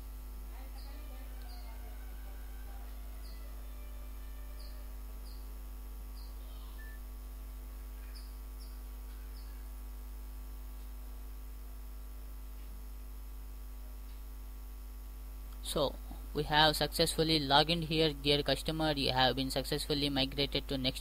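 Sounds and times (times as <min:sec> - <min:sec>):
electrical mains hum: 0:00.0 - 0:21.0
faint high-pitched chirps: 0:00.6 - 0:05.5, 0:06.1 - 0:07.1, 0:07.9 - 0:09.8.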